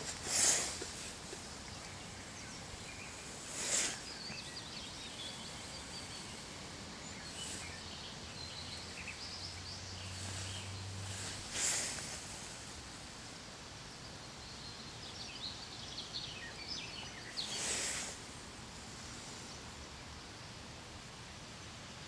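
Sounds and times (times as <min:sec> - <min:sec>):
brief swish of noise: 0:00.0 - 0:01.2, 0:03.4 - 0:04.2, 0:10.3 - 0:12.5
steady soft hiss: 0:00.0 - 0:22.0.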